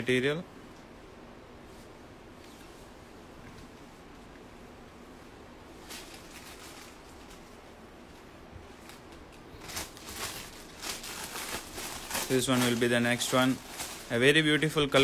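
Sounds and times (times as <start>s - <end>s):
silk fabric rustling: 1.5s - 15.0s
plastic packaging crinkling: 5.8s - 7.6s, 8.8s - 15.0s.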